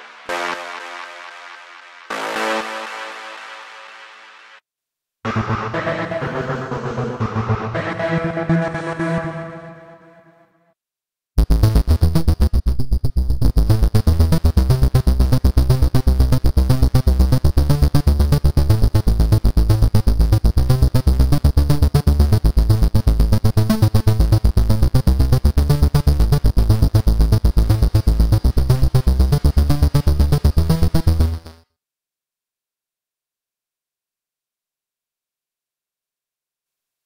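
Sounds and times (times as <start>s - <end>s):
synthesizer trance-gate pulses: 0.0s - 4.6s, 5.3s - 10.3s, 11.4s - 31.6s
heavy bass: 5.3s - 10.0s, 11.4s - 31.5s.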